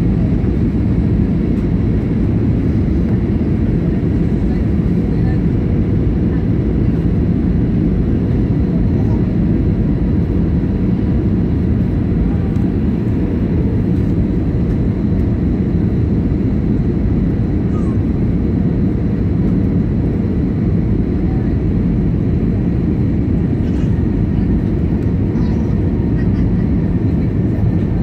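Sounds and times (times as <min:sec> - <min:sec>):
aircraft engines rumbling: 0:00.0 - 0:28.0.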